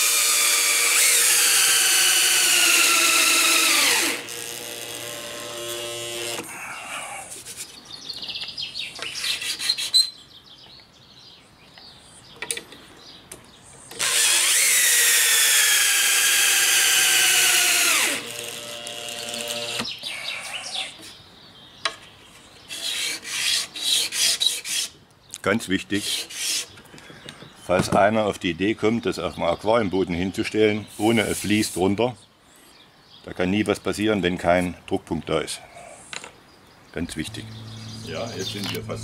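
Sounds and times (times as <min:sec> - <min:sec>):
cordless drill motor whine: 0:00.0 - 0:06.5, 0:13.9 - 0:19.9
drill bit scraping wood: 0:00.0 - 0:06.5, 0:13.9 - 0:19.9.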